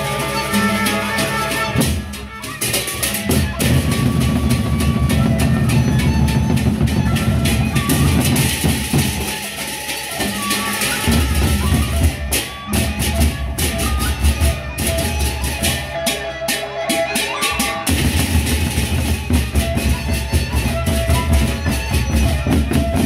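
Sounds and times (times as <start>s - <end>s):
hand cymbals clashing: 0.0s - 14.0s
large barrel drums beaten rapidly: 0.8s - 15.6s, 17.8s - 23.0s.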